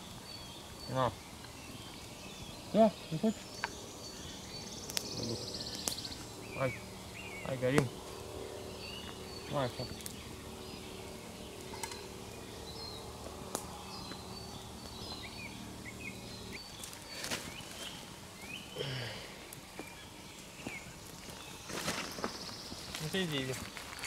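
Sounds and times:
steady low hum: 0.0s - 24.0s
sharp clicks: 4.8s - 6.1s.

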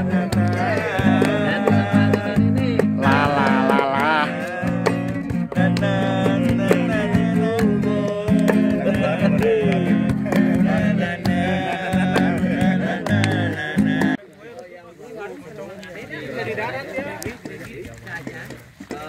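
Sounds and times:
classical guitar strumming: 0.0s - 14.2s
voices singing: 0.0s - 14.3s.

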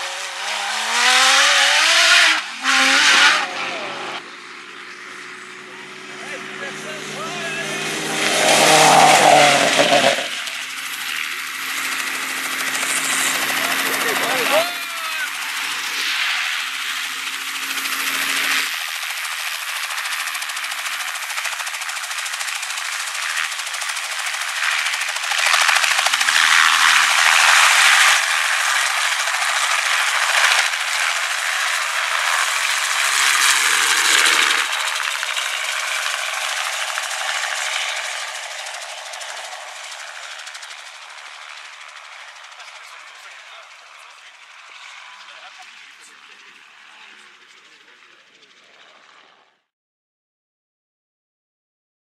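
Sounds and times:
rally car engine revving past: 0.0s - 4.2s, 6.2s - 10.5s
helicopter rotor chopping: 0.0s - 49.7s.

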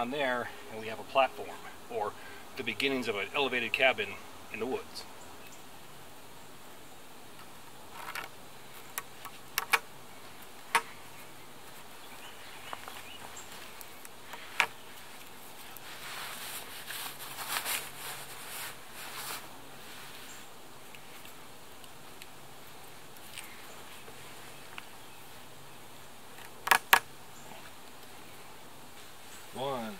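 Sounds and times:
cord rustling and scraping: 7.9s - 9.8s, 10.7s - 21.9s.

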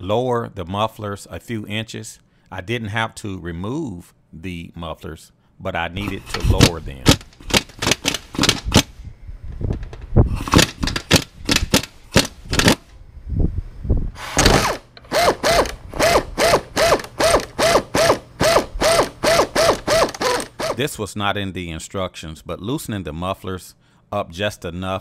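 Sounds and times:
air ratchet pulsing: 6.0s - 9.0s, 10.3s - 12.9s, 14.2s - 20.8s
pneumatic impact wrench hammering: 6.0s - 9.0s, 10.3s - 12.9s, 14.2s - 20.8s.

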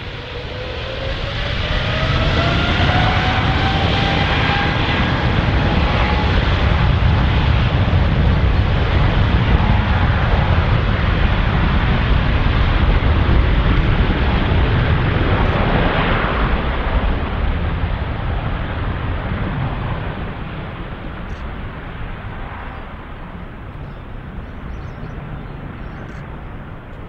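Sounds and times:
jet engines roaring: 0.0s - 27.0s.

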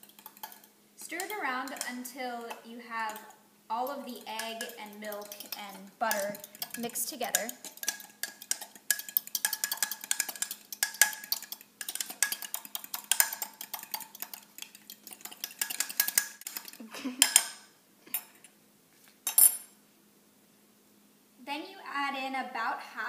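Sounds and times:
fork clinking against a mug: 0.0s - 2.0s, 4.3s - 18.4s.

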